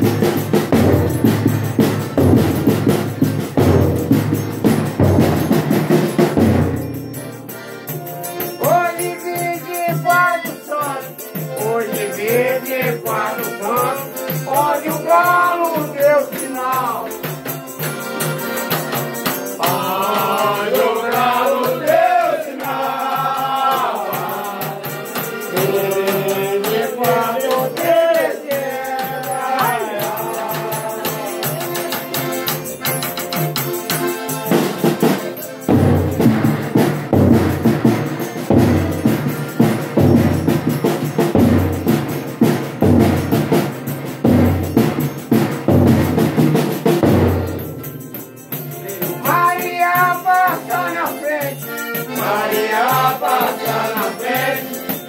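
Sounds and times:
loud drums: 0.0s - 55.0s
rattling percussion: 0.0s - 55.0s
voices singing chanted melody: 7.3s - 17.8s, 18.4s - 36.6s, 47.4s - 55.0s.

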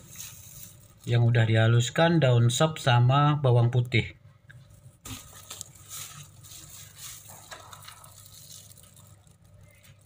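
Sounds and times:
plastic bag rustling: 0.0s - 1.9s, 4.6s - 10.0s.

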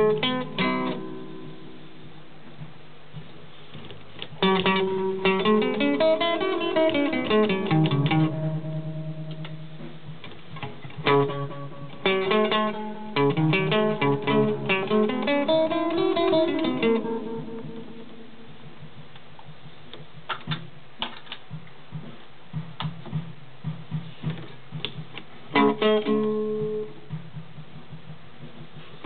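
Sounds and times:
echoing plucked guitar notes: 0.0s - 2.0s, 4.4s - 10.0s, 10.6s - 18.6s, 25.5s - 27.0s.

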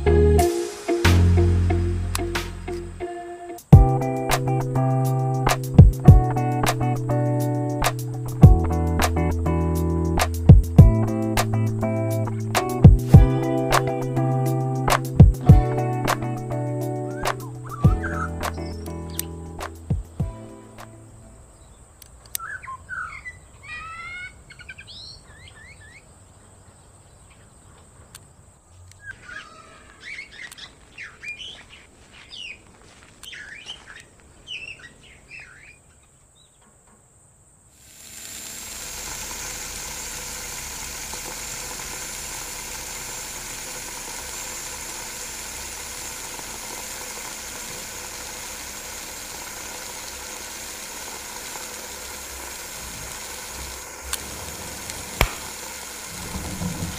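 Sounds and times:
toy water pump motor hiss: 5.2s - 19.9s, 37.7s - 56.9s
small birds chirping: 12.1s - 36.8s.

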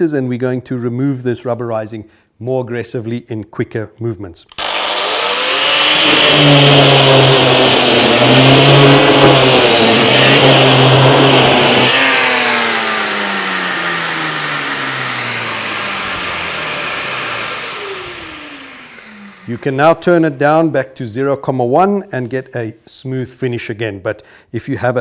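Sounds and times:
dust extractor vacuum running: 4.5s - 20.0s
motor winding down: 4.5s - 20.0s
power tool milling coating: 4.5s - 20.1s.

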